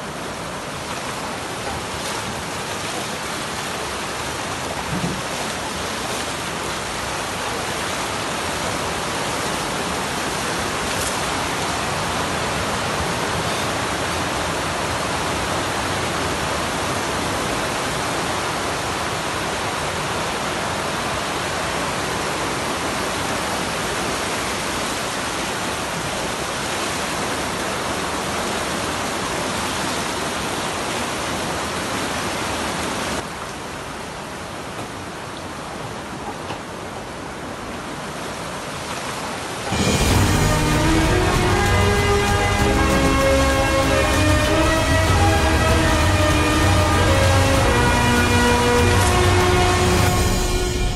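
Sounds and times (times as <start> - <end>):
rushing hiss of water: 38.2 - 50.9.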